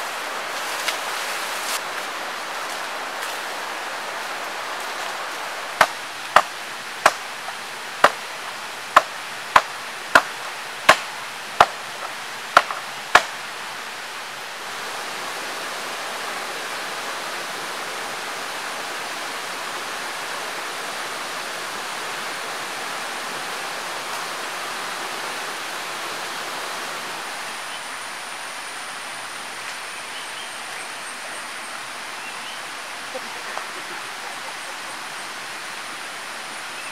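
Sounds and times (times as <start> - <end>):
stream rushing: 0.0 - 36.9
blade chopping wood: 5.8 - 7.2, 9.0 - 11.8, 12.6 - 13.4.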